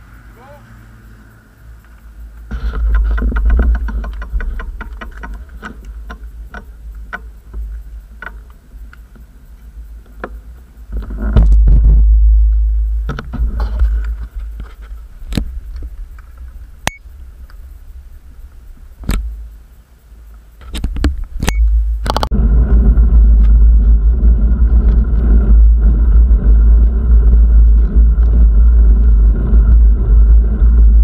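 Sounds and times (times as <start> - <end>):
scattered clicks and knocks: 1.8 - 17.8, 20.3 - 22.4
wind buffeting microphone: 20.6 - 31.0.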